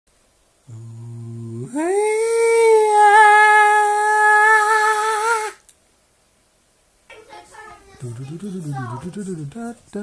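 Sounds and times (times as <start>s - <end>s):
person humming: 0.6s - 5.6s.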